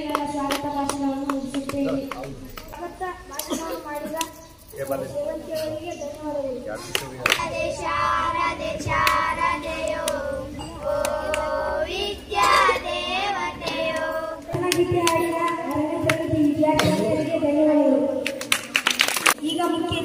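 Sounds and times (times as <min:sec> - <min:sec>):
girls singing into a microphone: 0:07.4 - 0:17.3.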